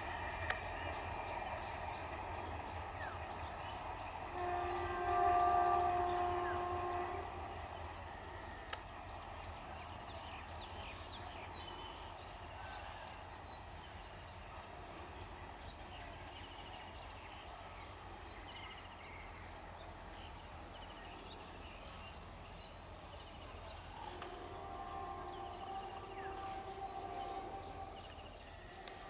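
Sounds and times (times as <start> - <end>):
locomotive horn: 4.3 - 8.7, 23.8 - 29.0
birds chirping and trilling: 23.2 - 28.5.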